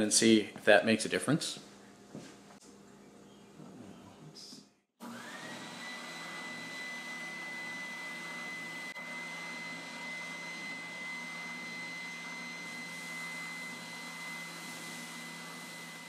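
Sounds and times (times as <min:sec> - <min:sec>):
spindle sander motor whine: 0:05.0 - 0:16.0.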